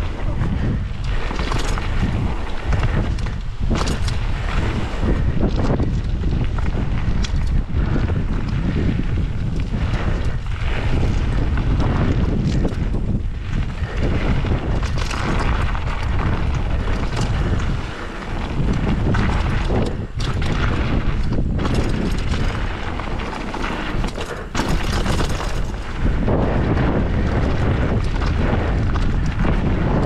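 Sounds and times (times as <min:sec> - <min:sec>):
bike rattling: 0:00.0 - 0:30.0
wind buffeting microphone: 0:00.0 - 0:30.0
tyres crunching on gravel: 0:20.5 - 0:26.6.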